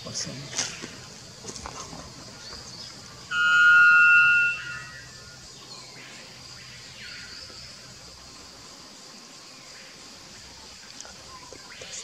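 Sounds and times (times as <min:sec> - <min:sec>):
loud clear bird call: 0:02.3 - 0:06.0.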